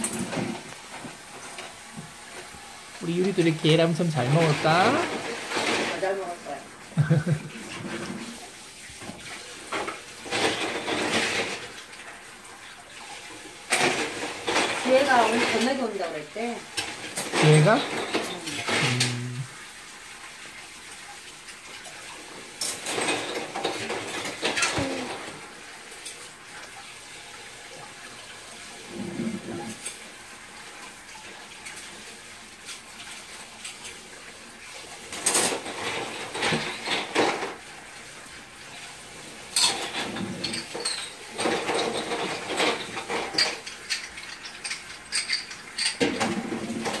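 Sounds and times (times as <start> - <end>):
dishes and utensils clattering: 0.0 - 2.4, 3.1 - 12.2, 13.0 - 19.2, 21.5 - 26.7, 28.8 - 30.2, 35.0 - 37.8, 38.7 - 47.0.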